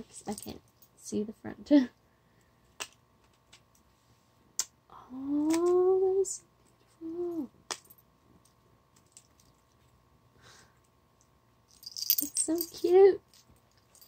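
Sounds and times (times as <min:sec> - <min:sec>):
woman humming: 0:04.9 - 0:06.4, 0:07.0 - 0:07.6
necklace chain clicking: 0:11.7 - 0:14.0.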